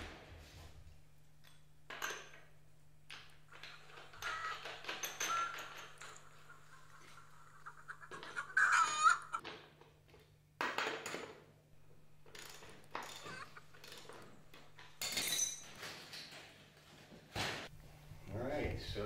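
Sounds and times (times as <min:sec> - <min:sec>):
metal and wood clinks and knocks: 0:03.5 - 0:06.4, 0:12.2 - 0:16.5.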